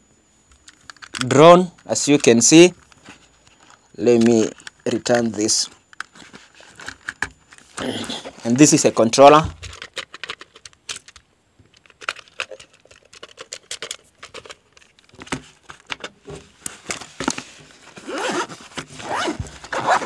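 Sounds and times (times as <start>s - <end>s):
packaging crinkling and rustling: 0.7s - 11.2s, 11.8s - 20.0s.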